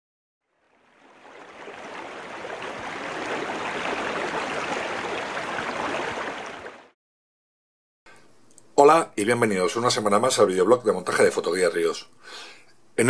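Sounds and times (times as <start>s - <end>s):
rushing stream water: 0.6s - 7.0s.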